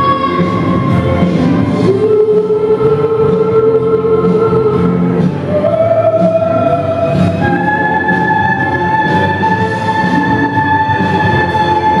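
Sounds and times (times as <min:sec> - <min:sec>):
steady musical accompaniment: 0:00.0 - 0:12.0.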